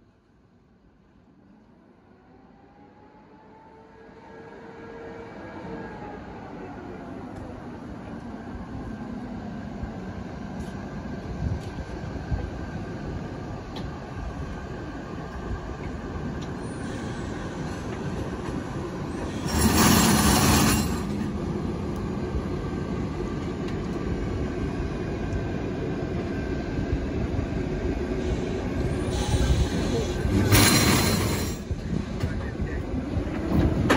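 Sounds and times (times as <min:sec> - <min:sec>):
electric locomotive running: 0:17.3 - 0:26.3.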